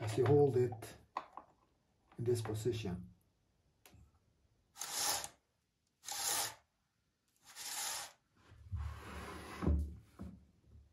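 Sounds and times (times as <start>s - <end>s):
saw chain rasping along guide bar: 4.8s - 5.4s, 6.0s - 6.6s, 7.4s - 8.2s.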